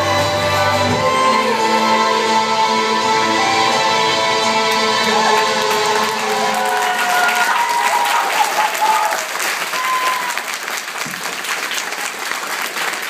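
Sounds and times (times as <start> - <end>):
dance music: 0.0 - 9.0
audience clapping: 4.7 - 13.0.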